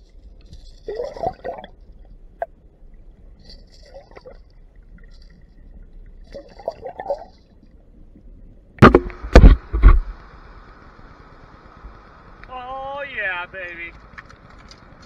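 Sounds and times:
muffled underwater crackling: 0:00.0 - 0:15.0
steady hiss: 0:07.2 - 0:15.0
loud thumps on camera: 0:08.8 - 0:10.1.

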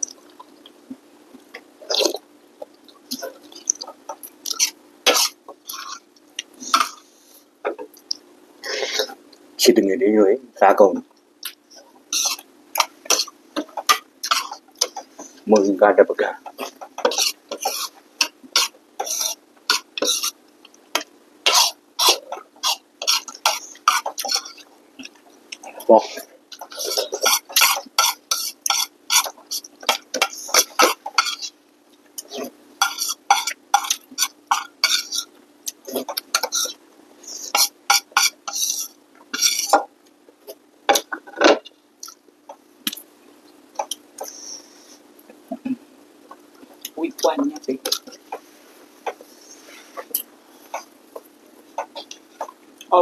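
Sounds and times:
spoon scraping ceramic bowl: 0:12.1 - 0:15.0, 0:16.6 - 0:20.4, 0:21.0 - 0:24.6, 0:26.6 - 0:31.6, 0:32.8 - 0:35.3, 0:36.1 - 0:39.8
slurping noodle soup: 0:21.5 - 0:31.6.

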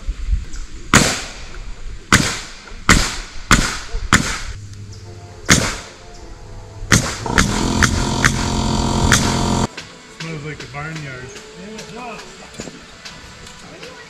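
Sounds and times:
nails driven into timber: 0:06.9 - 0:09.7.

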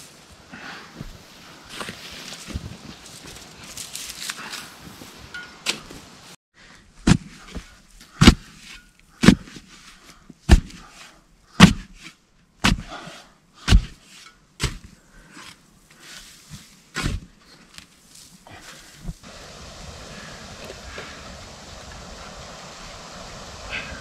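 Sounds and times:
shovel chopping into sandy soil: 0:07.0 - 0:09.7, 0:10.5 - 0:11.0, 0:11.6 - 0:13.0, 0:13.6 - 0:17.3.

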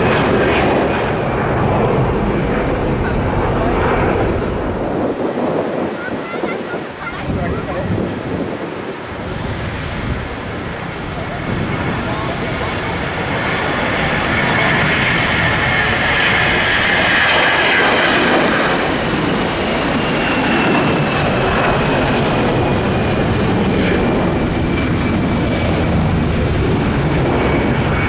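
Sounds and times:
high engine whine: 0:00.0 - 0:05.3
jet engines at take-off power: 0:00.0 - 0:28.0.

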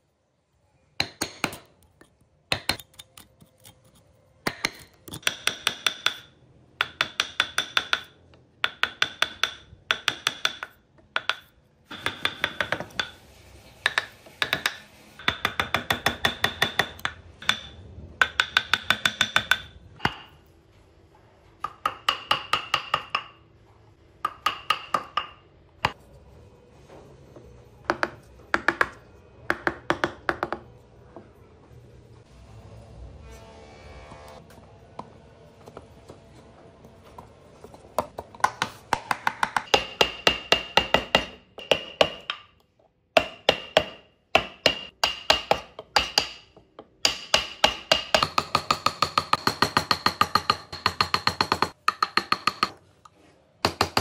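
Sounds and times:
hammer tapping metal chisel: 0:01.0 - 0:13.2, 0:13.8 - 0:20.5, 0:21.6 - 0:23.4, 0:24.2 - 0:26.0, 0:27.8 - 0:30.8, 0:38.0 - 0:52.8, 0:53.6 - 0:54.0.

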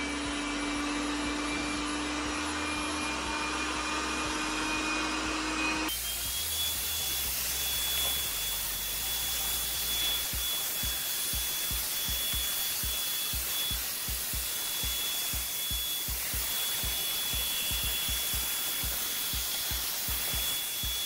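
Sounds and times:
robot vacuum motor hum: 0:00.0 - 0:21.0
hiss with thin high tone: 0:05.9 - 0:21.0.

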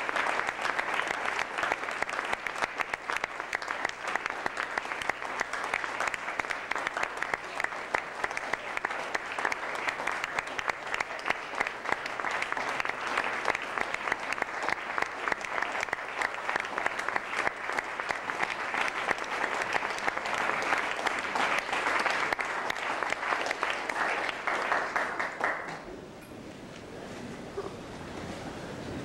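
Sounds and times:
audience applauding: 0:00.0 - 0:25.9.

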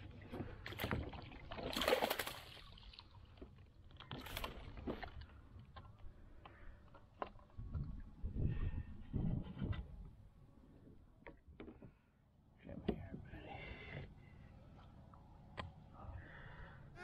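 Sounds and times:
water splash: 0:00.7 - 0:03.2.

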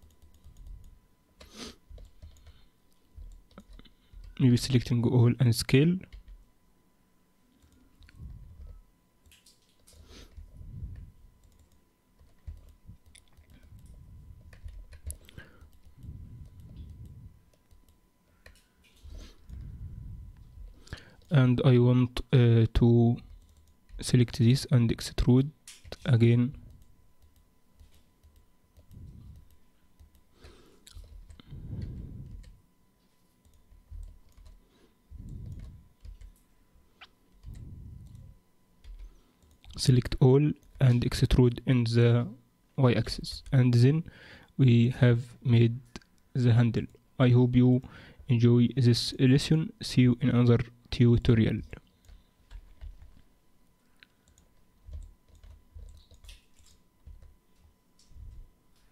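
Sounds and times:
computer mouse clicks: 0:00.0 - 0:02.6, 0:11.4 - 0:19.7, 0:35.2 - 0:36.5, 0:54.0 - 0:57.3.

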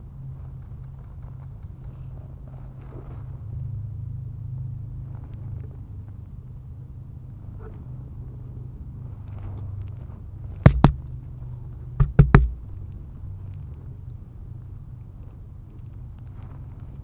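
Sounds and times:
sharp loud clacks: 0:10.7 - 0:11.0, 0:12.0 - 0:12.7.

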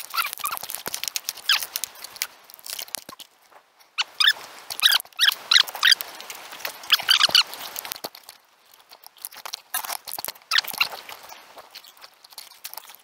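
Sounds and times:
high squeaky chirps: 0:00.0 - 0:02.3, 0:03.9 - 0:06.1, 0:06.8 - 0:08.0, 0:10.5 - 0:13.0
footsteps crunching dry leaves: 0:00.0 - 0:13.0.

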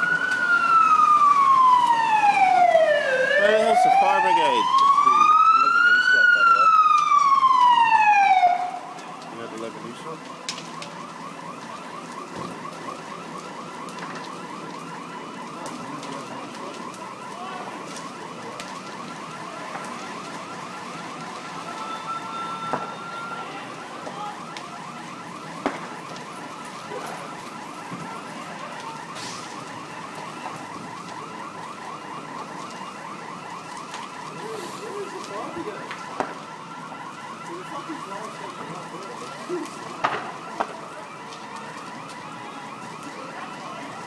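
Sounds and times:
fire crackling: 0:00.0 - 0:44.0
electronic alarm sweeping tone: 0:21.7 - 0:23.5.

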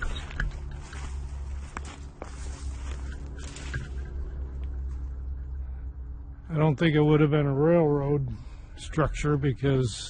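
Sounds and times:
footsteps on rough ground: 0:00.0 - 0:05.5
steady low rumble: 0:00.0 - 0:10.0.

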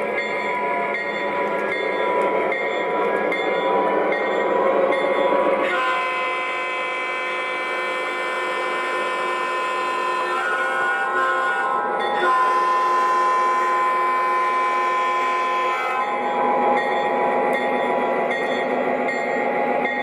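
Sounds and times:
wheels rumbling on rails: 0:00.0 - 0:06.1
model train engine sound: 0:00.0 - 0:20.0.

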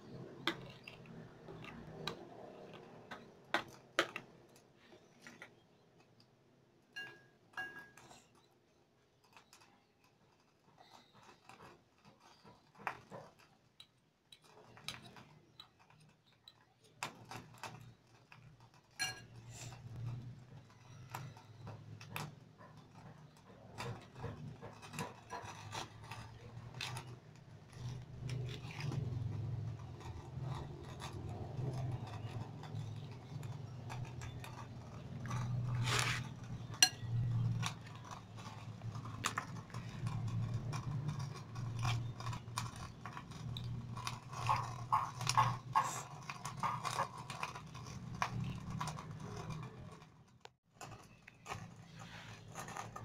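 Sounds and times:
spoon clinking and scraping glass bowl: 0:06.9 - 0:08.5, 0:19.0 - 0:20.2, 0:27.9 - 0:49.8.

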